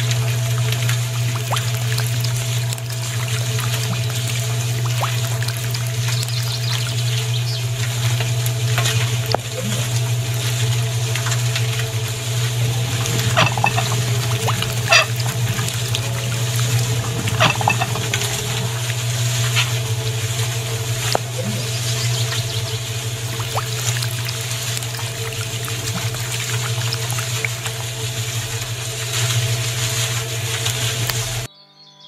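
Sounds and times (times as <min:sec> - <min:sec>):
steady low hum: 0:00.0 - 0:31.5
wet cement pouring and squelching: 0:01.2 - 0:07.1, 0:12.8 - 0:18.1, 0:23.2 - 0:28.2.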